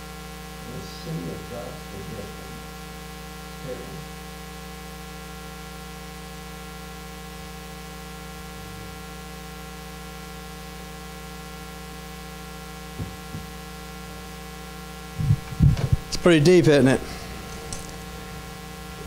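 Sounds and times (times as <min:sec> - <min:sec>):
electrical hiss and mains hum: 0:00.0 - 0:19.0
microphone handling knocks: 0:12.9 - 0:13.6, 0:15.2 - 0:16.2
steady tones: 0:15.1 - 0:19.0.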